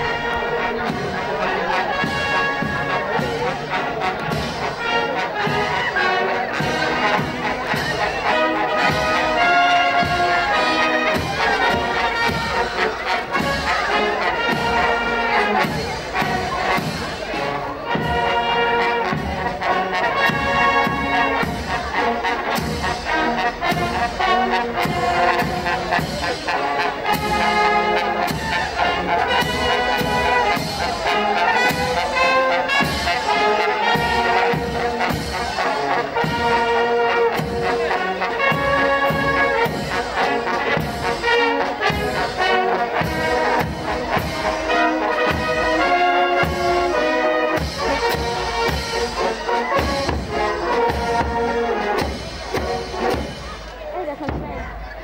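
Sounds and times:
brass band playing a march: 0.0 - 55.0
bass drum beat: 54.1 - 55.0.

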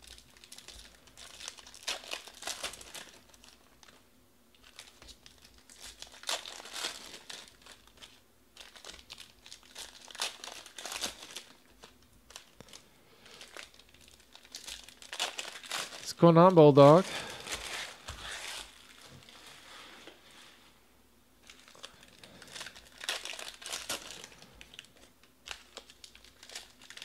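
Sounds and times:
foil wrappers tearing and crinkling: 0.0 - 16.1, 17.0 - 19.5, 21.4 - 27.0.

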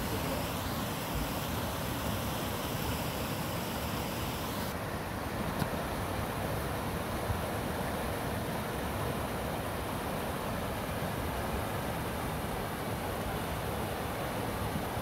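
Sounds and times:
creek water rushing: 0.0 - 15.0.

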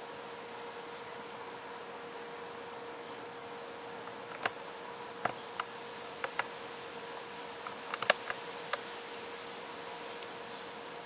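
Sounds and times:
faint hum: 0.0 - 11.0
steady hiss: 0.0 - 11.0
sharp irregular clicks: 4.3 - 4.6, 5.2 - 6.5, 7.6 - 8.8.

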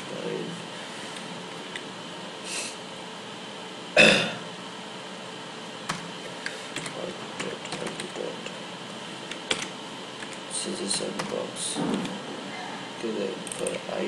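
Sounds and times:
computer keyboard typing: 6.7 - 8.6, 9.2 - 12.2, 13.4 - 13.8.

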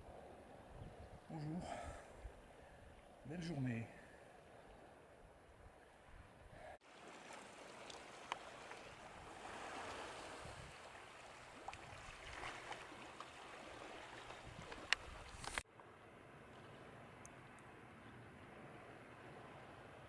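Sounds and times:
water lapping among rocks: 6.8 - 15.6.

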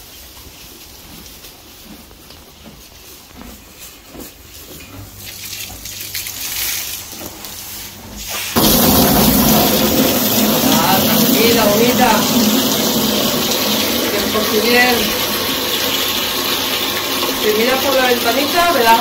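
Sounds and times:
mule chewing in straw: 0.0 - 8.6.

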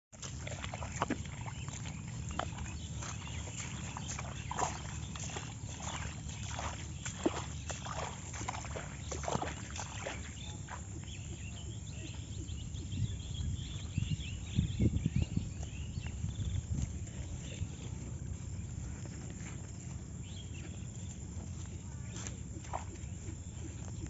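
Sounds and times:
bare footsteps through tall grass: 0.2 - 11.7
heavy thumping footsteps: 0.6 - 11.8.

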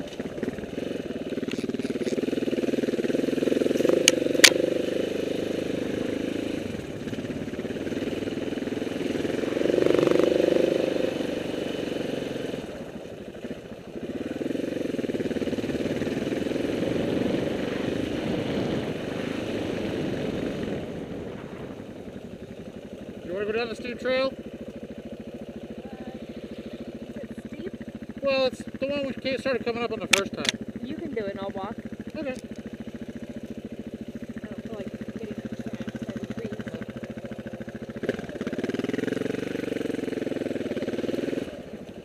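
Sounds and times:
motorcycle engine revving: 0.0 - 42.0
sharp clicks: 3.8 - 4.6, 30.1 - 30.6.

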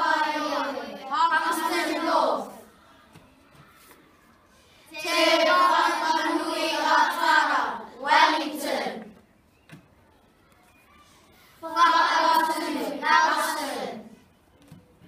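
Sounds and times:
children singing in unison: 0.0 - 2.7, 4.9 - 9.2, 11.6 - 14.2.

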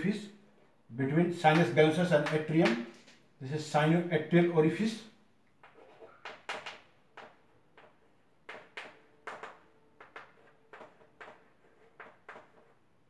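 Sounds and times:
chalk scratching on chalkboard: 10.0 - 12.8.

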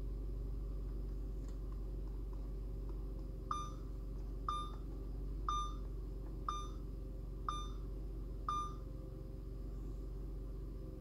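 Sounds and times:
low steady hum: 0.0 - 11.0
short electronic beeps: 3.5 - 3.8, 4.5 - 4.8, 5.5 - 5.8, 6.5 - 6.8, 7.5 - 7.8, 8.5 - 8.8.

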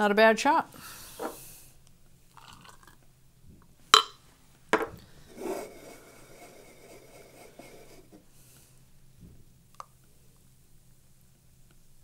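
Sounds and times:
faint steady hiss: 0.0 - 12.0
cup knocking on counter: 4.7 - 5.0.

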